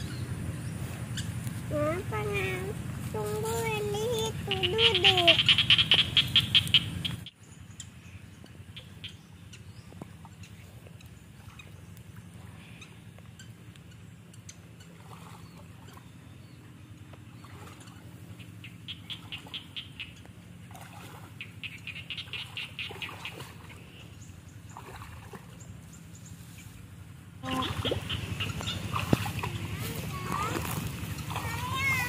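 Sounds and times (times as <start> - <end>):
steady low rumble: 0.0 - 32.0
animal chattering call: 3.6 - 7.3, 21.4 - 23.4, 27.4 - 30.6.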